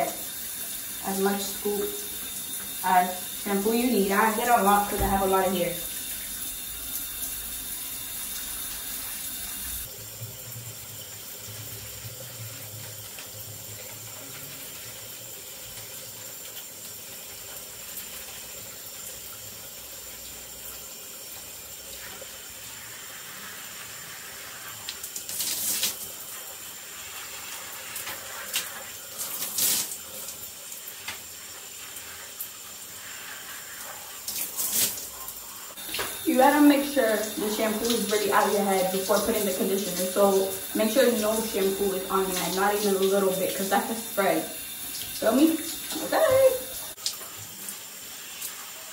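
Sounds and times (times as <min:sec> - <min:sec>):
shower spray on tiled floor: 0:00.0 - 0:10.4, 0:21.9 - 0:48.9.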